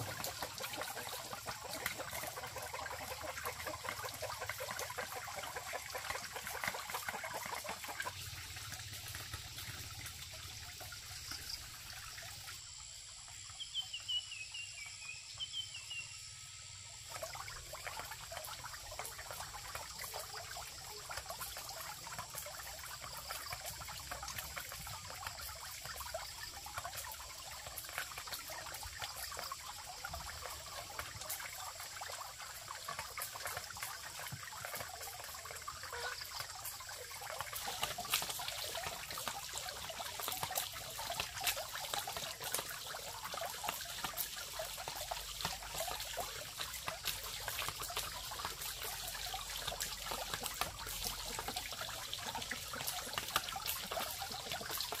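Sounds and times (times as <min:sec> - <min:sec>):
water trickling and splashing: 0:00.0 - 0:55.0.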